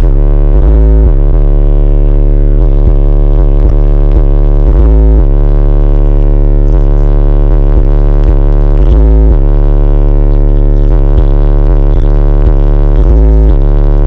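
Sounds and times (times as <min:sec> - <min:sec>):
distorted bass-heavy music: 0:00.0 - 0:14.0.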